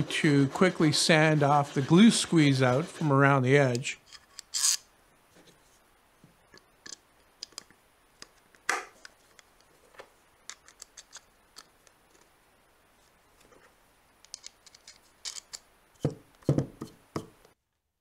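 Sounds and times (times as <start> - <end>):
clicks and scrapes of wooden parts: 9.0 - 12.3, 13.4 - 15.7.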